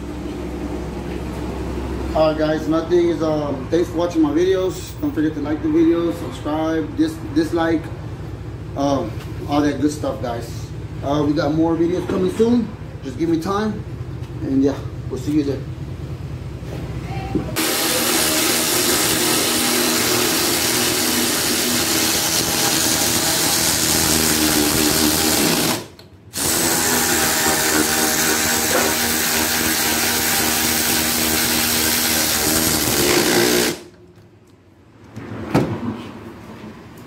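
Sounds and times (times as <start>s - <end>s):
power ratchet whirring: 17.6s - 34.0s.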